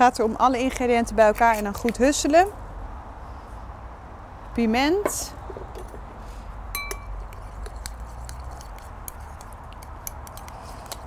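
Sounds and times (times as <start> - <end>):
spoon tapping ceramic bowl: 6.8 - 7.9
spoon stirring dressing: 6.8 - 11.0.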